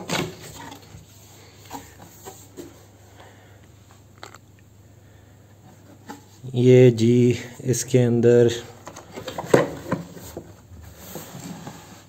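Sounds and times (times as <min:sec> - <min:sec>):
cardboard box rustling: 0:00.0 - 0:02.9.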